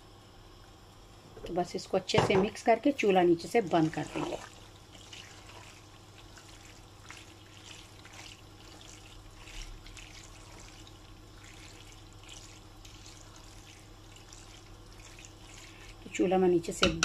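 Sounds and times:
steady low hum: 0:00.0 - 0:17.0
spatula stirring wet food: 0:03.4 - 0:16.9.

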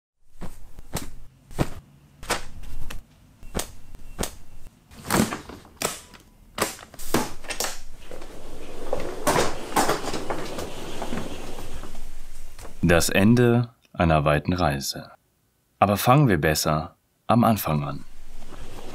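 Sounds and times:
suitcase rumbling scrape: 0:07.9 - 0:12.8, 0:18.2 - 0:18.9.

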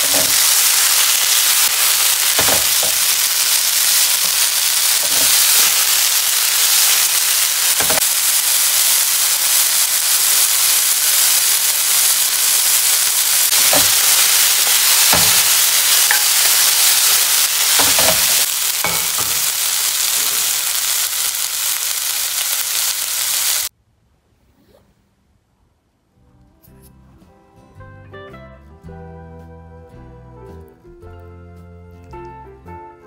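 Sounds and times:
meat sizzling in a frying pan: 0:00.0 - 0:23.7.

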